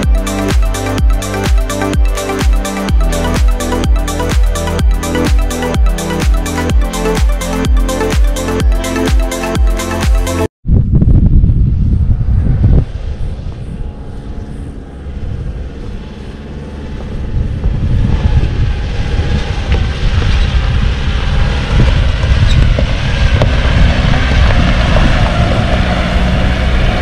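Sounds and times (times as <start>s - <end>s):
motor vehicle driving: 11.7s - 27.0s.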